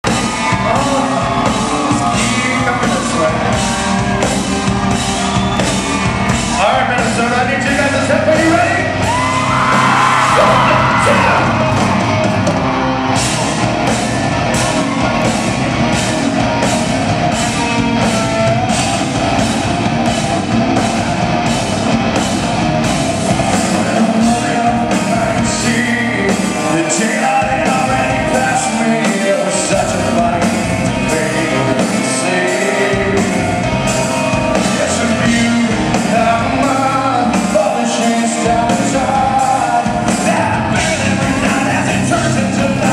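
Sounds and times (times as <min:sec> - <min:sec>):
drum beat: 0:00.0 - 0:42.9
electric guitar: 0:00.0 - 0:42.9
man singing: 0:00.2 - 0:03.6, 0:23.6 - 0:42.9.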